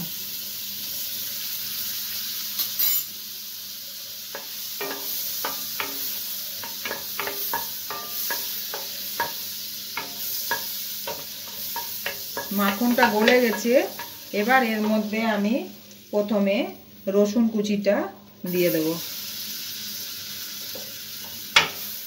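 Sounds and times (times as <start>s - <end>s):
butter sizzling in a pan: 0.0s - 22.0s
wooden spatula scraping a pan: 10.0s - 15.1s.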